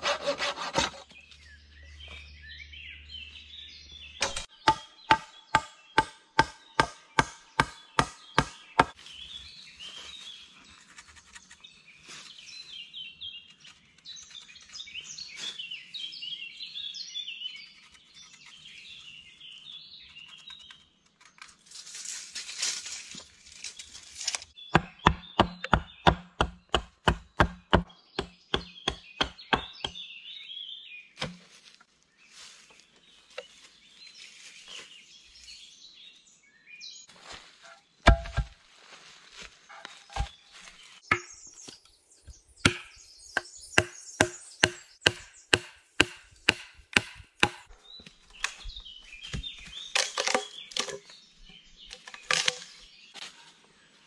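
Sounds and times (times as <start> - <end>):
hand tool striking wood: 0.0 - 1.0, 4.2 - 9.0, 24.7 - 30.0, 31.2 - 31.4, 38.0 - 38.6, 39.8 - 40.3, 41.1 - 41.4, 42.6 - 47.7.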